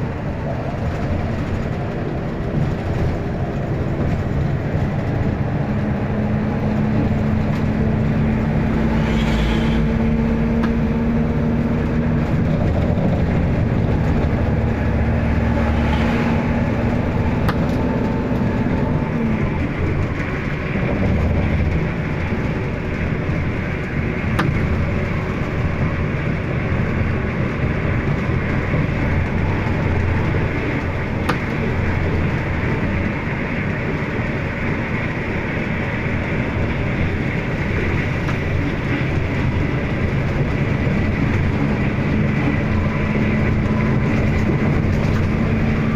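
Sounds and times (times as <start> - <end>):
bus engine and road drone: 0.0 - 45.9
held hum: 0.0 - 45.9.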